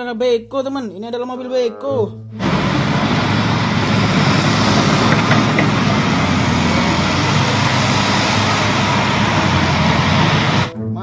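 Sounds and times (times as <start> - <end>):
diesel excavator engine running: 2.4 - 10.7.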